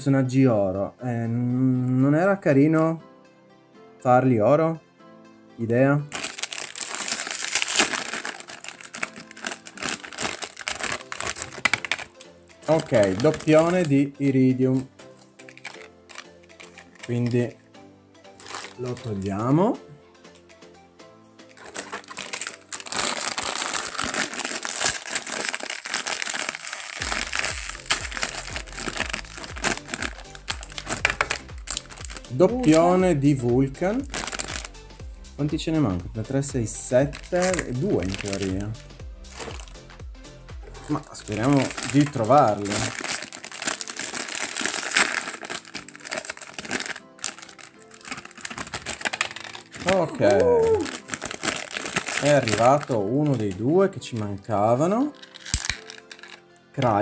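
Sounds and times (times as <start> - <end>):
quiet music: 0.0 - 57.0
plastic bag crinkling: 6.1 - 14.0, 14.7 - 17.5, 18.4 - 19.3, 21.5 - 32.9, 34.0 - 34.7, 37.1 - 39.9, 40.8 - 54.4, 55.0 - 56.4.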